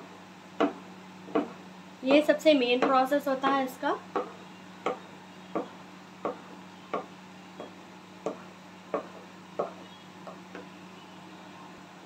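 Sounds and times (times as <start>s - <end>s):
steady low hum: 0.0s - 12.0s
wooden spoon knocking on pot: 0.6s - 1.6s, 4.2s - 10.7s.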